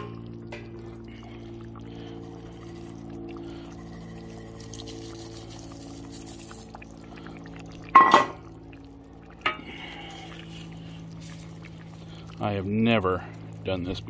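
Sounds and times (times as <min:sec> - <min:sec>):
steady low hum: 0:00.0 - 0:14.0
chips pouring with dry rustling: 0:03.8 - 0:06.8.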